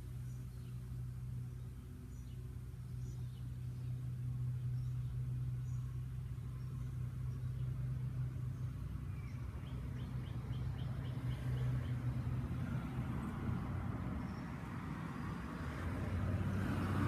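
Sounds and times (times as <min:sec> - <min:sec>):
road traffic: 0:00.0 - 0:17.0
steady low hum: 0:00.0 - 0:17.0
bird chirping: 0:00.2 - 0:12.7.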